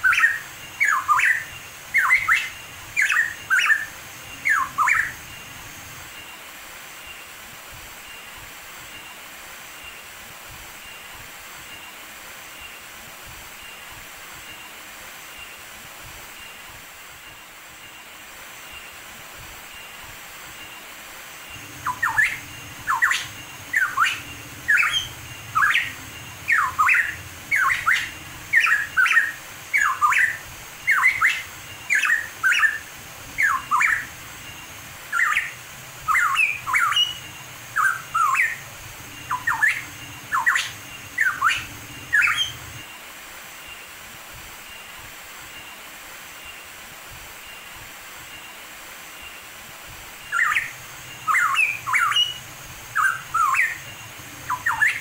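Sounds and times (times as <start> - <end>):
faint steady hiss: 0.0 - 55.0
bird calling with short sweeping notes: 21.6 - 42.8, 50.2 - 55.0.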